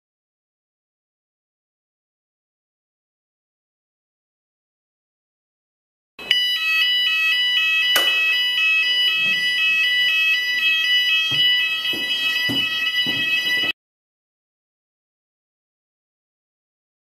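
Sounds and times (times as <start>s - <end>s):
pulsing electronic fire alarm: 6.2s - 13.8s.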